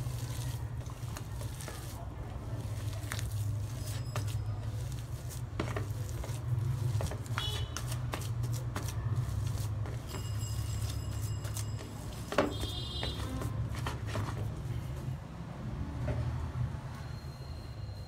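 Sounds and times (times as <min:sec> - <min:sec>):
hand squishing mashed potato: 0:00.0 - 0:10.1.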